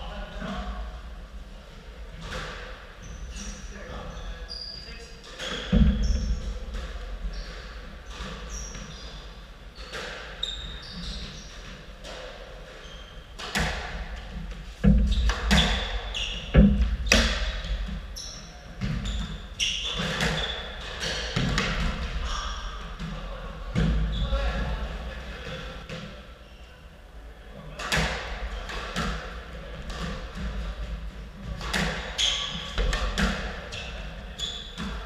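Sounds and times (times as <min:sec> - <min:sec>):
shoes squeaking on wooden floor: 0:07.2 - 0:11.9, 0:12.7 - 0:23.0, 0:31.4 - 0:35.0.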